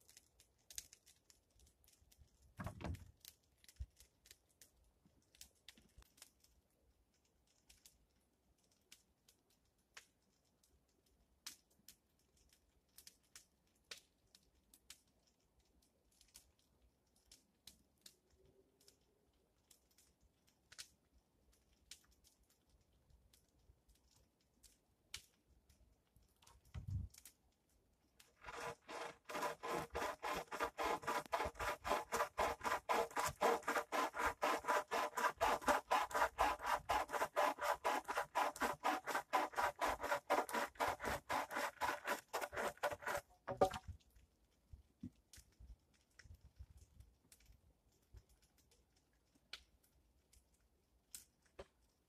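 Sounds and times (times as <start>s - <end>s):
hand saw cutting wood: 28.4s - 43.8s.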